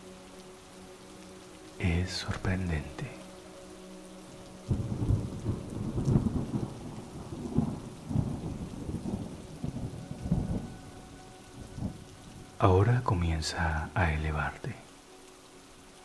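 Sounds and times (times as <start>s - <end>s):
steady rain: 0.0s - 16.0s
rolling thunder rumble: 4.7s - 10.9s.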